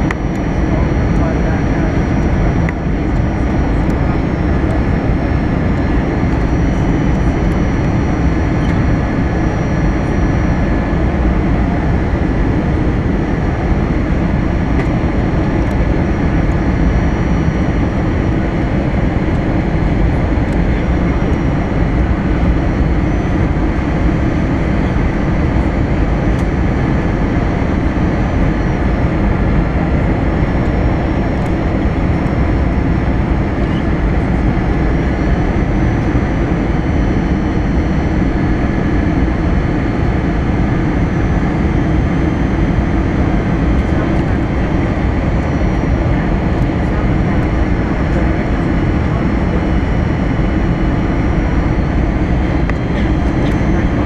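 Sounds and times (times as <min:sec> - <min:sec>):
faint steady whine: 0:00.0 - 0:54.0
jet engine cabin roar: 0:00.0 - 0:54.0.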